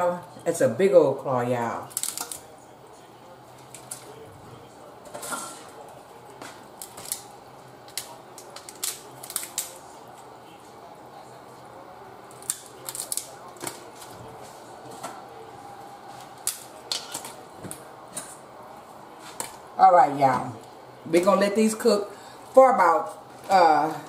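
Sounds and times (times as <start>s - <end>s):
crab shells cracking: 1.9s - 2.5s, 3.6s - 4.2s, 6.3s - 10.2s, 12.3s - 14.0s, 16.2s - 18.3s.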